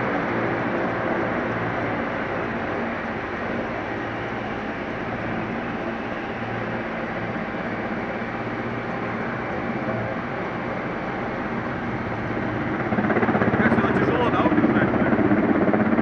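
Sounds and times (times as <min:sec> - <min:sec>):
helicopter hovering: 0:00.0 - 0:16.0.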